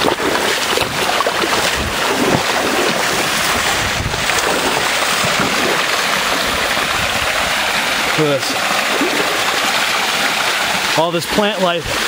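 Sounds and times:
wind bumps on microphone: 0:00.0 - 0:07.7
stream water rushing over rocks: 0:00.0 - 0:12.0.

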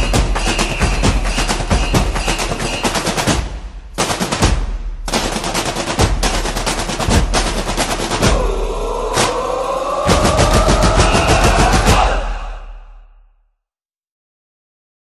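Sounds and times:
rapid machine-gun-like rattle: 0:00.0 - 0:03.4, 0:04.0 - 0:08.2.

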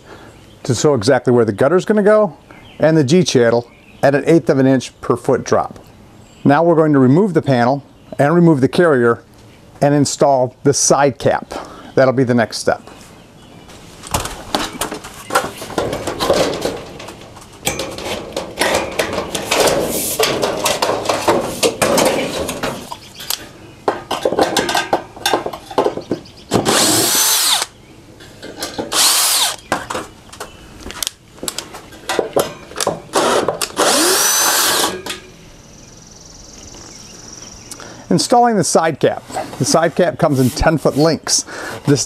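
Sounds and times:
knocking and rattling: 0:14.1 - 0:23.0, 0:23.8 - 0:26.9, 0:31.4 - 0:34.0
cordless drill whining: 0:26.6 - 0:27.7, 0:28.9 - 0:29.6, 0:33.2 - 0:35.0.

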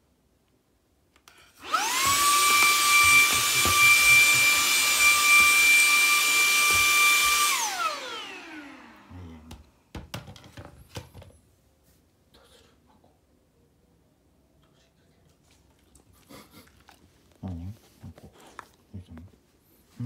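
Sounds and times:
stick vacuum cleaner whining: 0:01.2 - 0:09.7.

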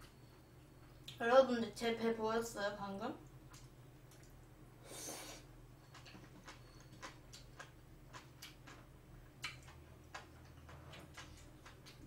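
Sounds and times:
wet chewing clicks: 0:03.2 - 0:04.6, 0:05.8 - 0:12.0.

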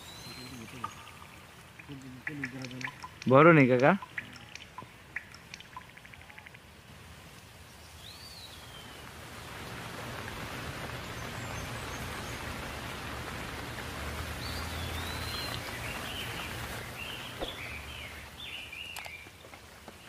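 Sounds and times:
small birds chirping: 0:00.0 - 0:06.6, 0:07.6 - 0:09.1, 0:14.3 - 0:20.0
steady rushing hiss: 0:00.0 - 0:20.0.

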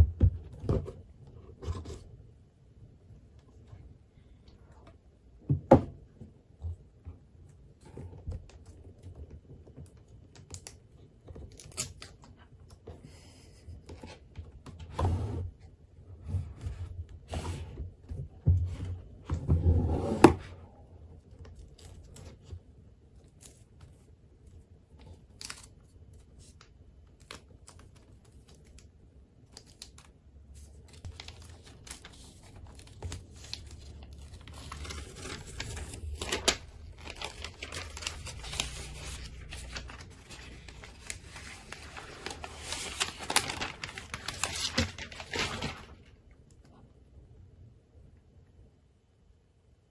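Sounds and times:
paper wrapping rustling: 0:29.6 - 0:46.2.

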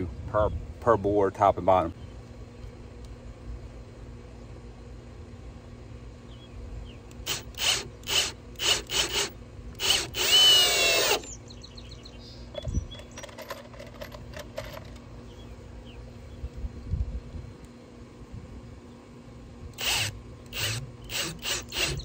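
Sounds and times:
cordless drill driving screw: 0:07.1 - 0:11.4, 0:19.7 - 0:22.0.

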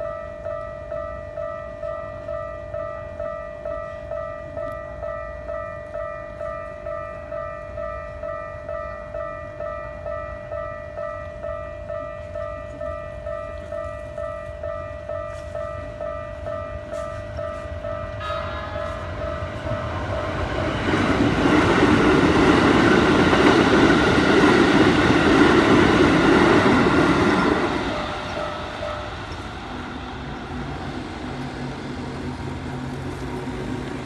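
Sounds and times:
level crossing warning bell: 0:00.0 - 0:32.9
train rumbling past: 0:00.0 - 0:34.0.

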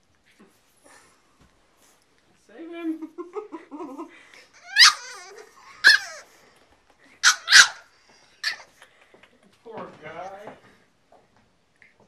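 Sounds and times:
puppy barking: 0:04.6 - 0:06.2, 0:07.2 - 0:08.7.

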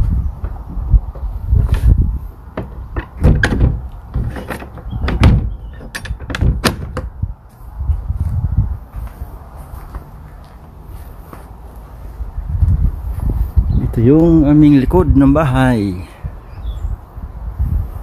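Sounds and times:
shed door clicking and rattling: 0:00.4 - 0:07.2.

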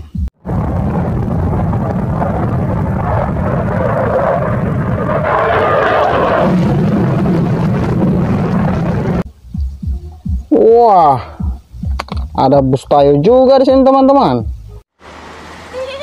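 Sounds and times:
fighter jet engines roaring: 0:00.5 - 0:09.2.

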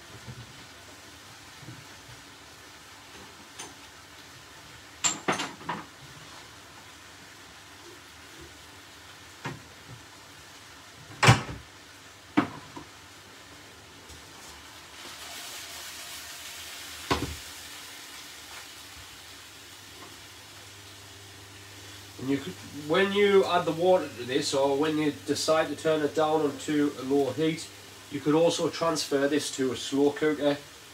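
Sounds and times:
steaks sizzling in frying pan: 0:11.7 - 0:30.9.

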